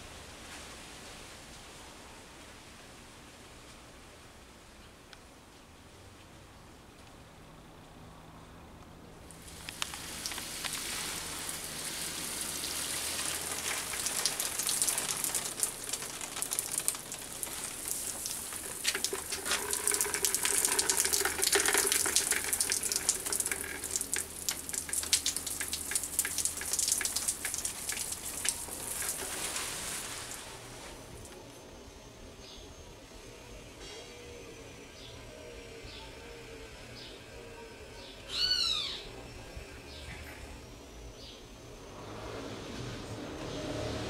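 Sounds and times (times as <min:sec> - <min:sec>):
water spattering on leaves: 0:09.4 - 0:30.8.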